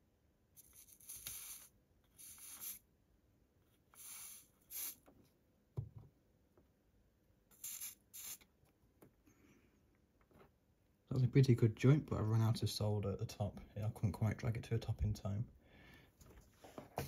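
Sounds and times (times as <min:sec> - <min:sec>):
soldering iron scratchy hisses: 0:00.6 - 0:02.8, 0:04.0 - 0:05.0, 0:07.5 - 0:08.5.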